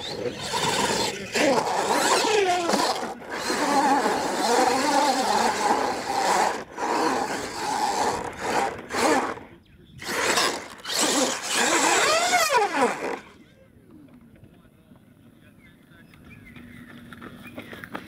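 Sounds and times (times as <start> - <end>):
toy truck electric motor whining: 0.0 - 13.4.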